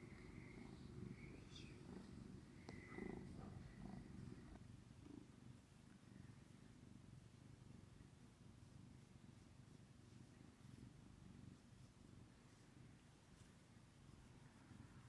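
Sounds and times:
cat purring: 0.0s - 15.0s
faint ticks: 2.5s - 3.8s.

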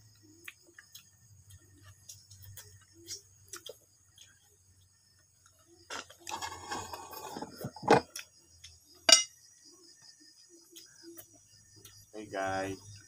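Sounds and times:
crickets chirping: 0.0s - 13.0s
dishes clinking: 6.3s - 8.0s, 9.1s - 9.3s.

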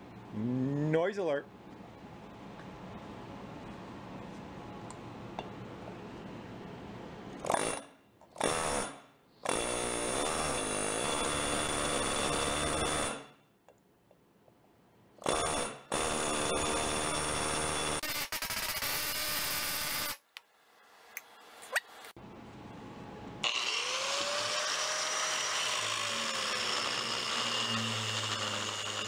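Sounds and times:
pneumatic air drill whining: 23.4s - 29.0s.

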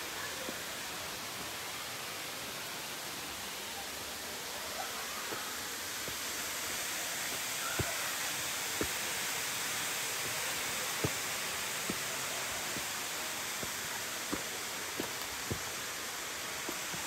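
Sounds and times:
waterfall pouring into pool: 0.2s - 17.0s.

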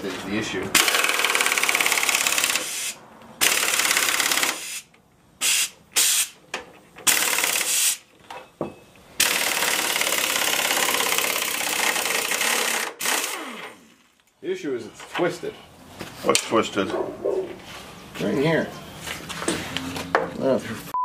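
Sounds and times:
air impact wrench hammering: 0.7s - 6.4s, 7.0s - 8.1s, 9.2s - 13.8s.

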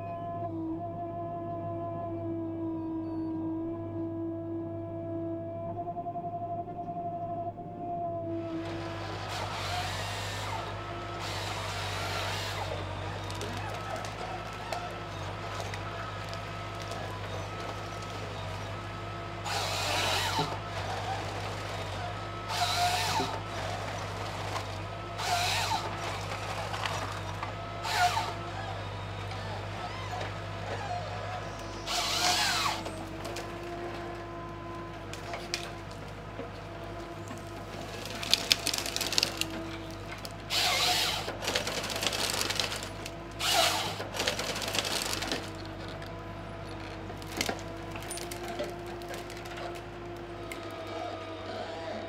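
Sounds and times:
harvester engine running: 8.4s - 52.0s
crackling of branches stripped: 8.5s - 51.6s
chainsaw cutting log: 8.5s - 52.0s.

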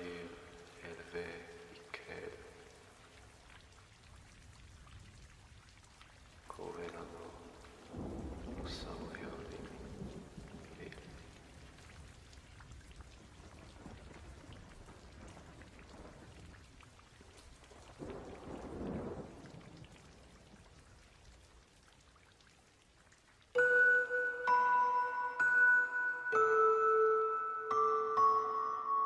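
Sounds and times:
steady rain: 0.0s - 28.8s
thunder rumbling: 7.0s - 21.1s
bell-like mallet melody: 23.6s - 29.0s.

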